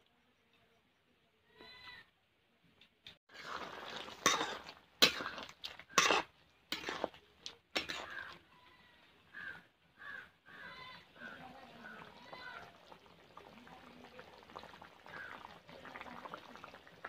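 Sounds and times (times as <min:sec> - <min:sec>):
metal spatula scraping pan: 0:03.3 - 0:07.2, 0:07.8 - 0:08.4.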